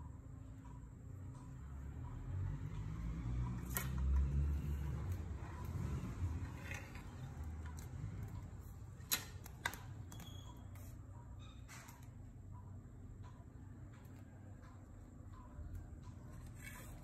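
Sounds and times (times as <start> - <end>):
fishing rod clicks on tile floor: 3.6 - 4.4.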